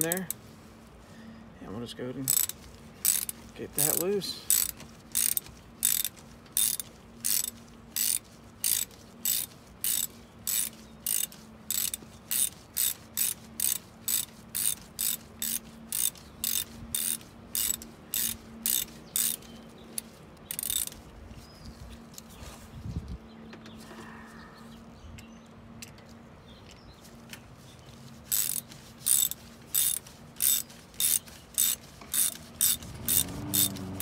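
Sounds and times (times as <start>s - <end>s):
hand ratchet clicking: 2.2s - 21.1s, 28.2s - 34.0s.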